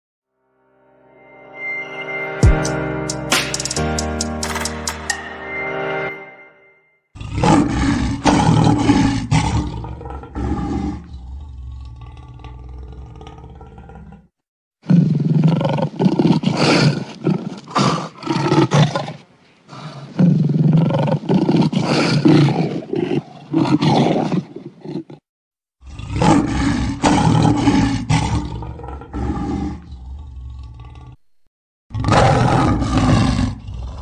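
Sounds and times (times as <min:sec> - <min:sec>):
tiger roaring and snarling: 0:07.2 - 0:25.2, 0:25.8 - 0:31.3, 0:31.9 - 0:34.0.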